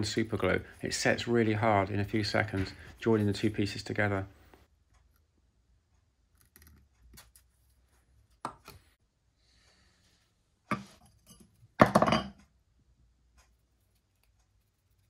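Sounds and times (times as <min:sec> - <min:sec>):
tools knocking on wooden workbench: 0:11.8 - 0:12.4.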